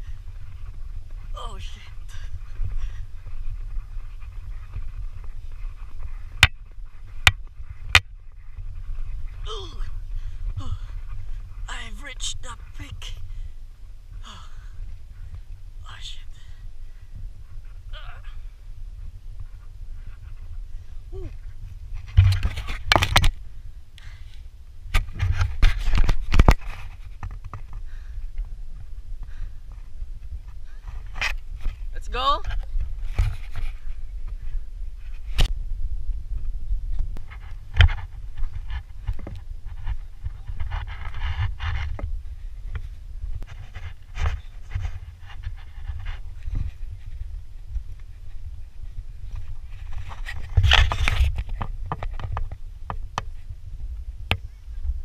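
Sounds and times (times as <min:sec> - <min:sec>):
footsteps in loose sand: 0:00.0 - 0:11.7, 0:32.5 - 0:55.0
wind rumbling on microphone: 0:00.0 - 0:55.0
person panting heavily: 0:01.9 - 0:03.4, 0:14.2 - 0:15.4, 0:27.7 - 0:28.4, 0:29.2 - 0:29.8.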